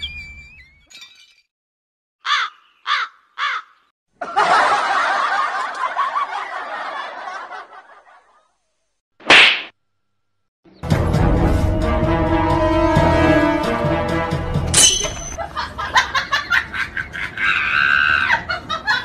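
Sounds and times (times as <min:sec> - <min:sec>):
short cawing calls: 0:02.2 - 0:03.9
laughter: 0:04.2 - 0:08.6, 0:15.4 - 0:19.0.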